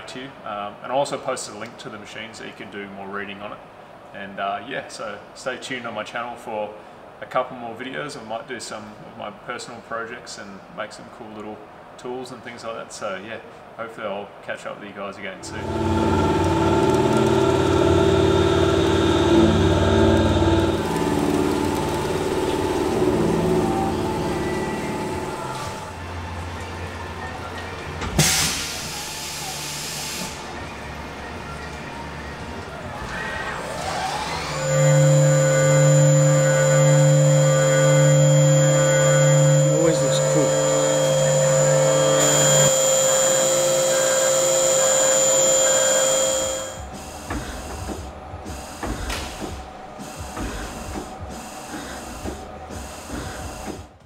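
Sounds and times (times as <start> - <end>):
milling machine humming: 15.4 - 26.6, 33.6 - 53.9.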